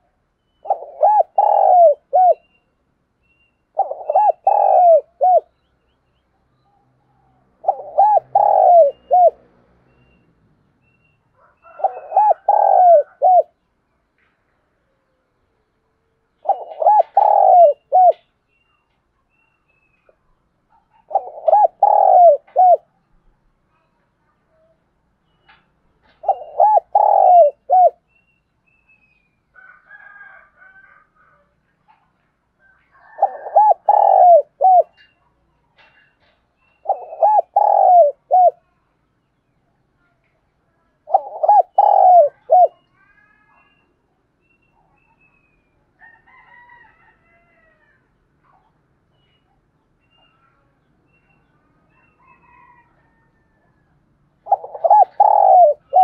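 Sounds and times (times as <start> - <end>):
dove cooing: 0.6 - 2.5, 3.7 - 5.5, 7.6 - 9.5, 11.4 - 13.6, 16.4 - 18.2, 20.7 - 22.9, 26.0 - 28.0, 32.9 - 35.1, 36.8 - 38.7, 41.0 - 42.8, 54.4 - 56.0.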